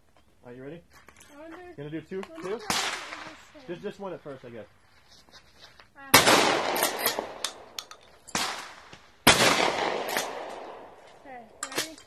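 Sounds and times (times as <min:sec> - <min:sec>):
shotgun blasts with echo: 0:02.6 - 0:03.5, 0:06.1 - 0:11.0.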